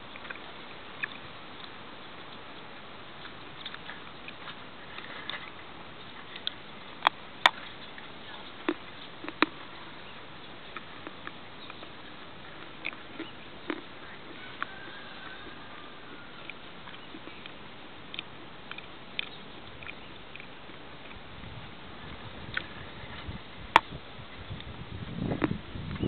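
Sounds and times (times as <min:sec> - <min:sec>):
chalk being chewed crunching: 0:03.2 - 0:11.9, 0:12.5 - 0:21.2.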